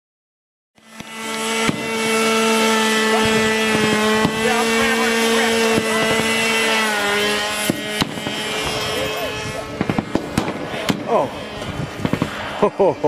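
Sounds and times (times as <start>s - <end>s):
model airplane engine running: 0.8s - 13.0s
gunfire cracks: 1.0s - 1.9s, 7.6s - 8.4s, 9.8s - 11.1s.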